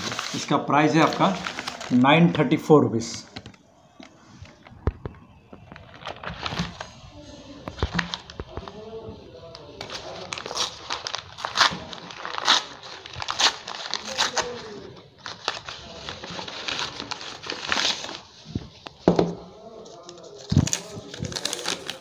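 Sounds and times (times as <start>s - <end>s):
paper crinkling and rustling: 0.0s - 2.4s, 3.0s - 22.0s
paper tearing: 9.7s - 18.3s, 20.0s - 22.0s.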